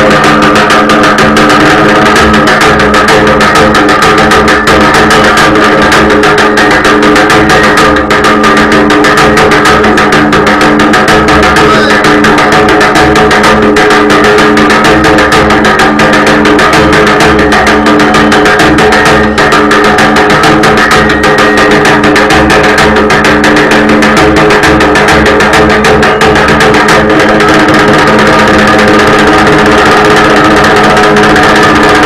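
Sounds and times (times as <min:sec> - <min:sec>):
barrel drum beating fast: 0:00.0 - 0:32.0.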